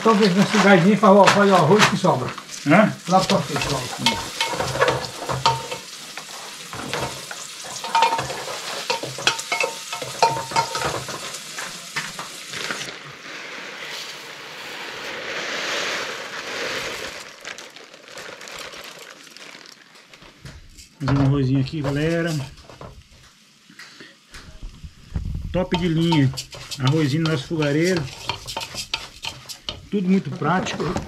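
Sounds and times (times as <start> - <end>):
food frying: 0.0 - 31.0
rice pouring hiss: 0.0 - 31.0
spoon knocking in pot: 3.3 - 5.8, 7.8 - 11.2, 25.7 - 29.9.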